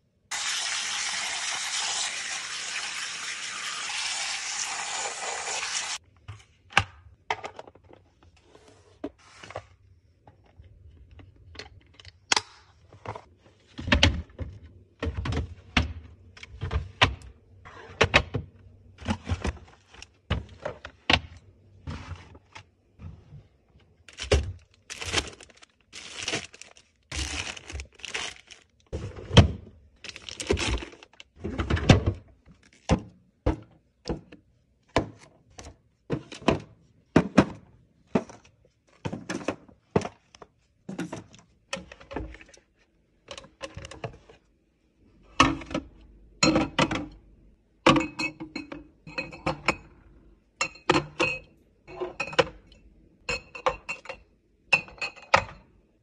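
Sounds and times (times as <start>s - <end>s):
plastic bags rustling: 24.1s - 29.2s, 30.0s - 31.3s.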